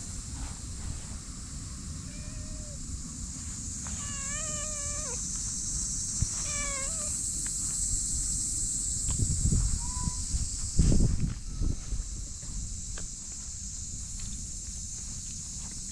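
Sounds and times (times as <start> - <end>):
cat meowing: 2.1 - 2.8, 4.0 - 5.2, 6.4 - 7.2, 9.8 - 10.2.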